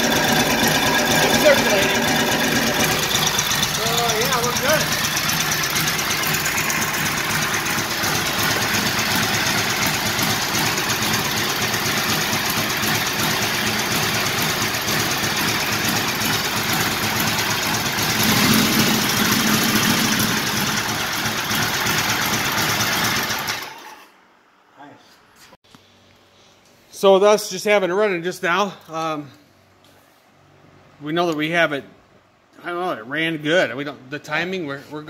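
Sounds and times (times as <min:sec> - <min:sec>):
motorcycle engine idling: 0:00.0 - 0:23.6.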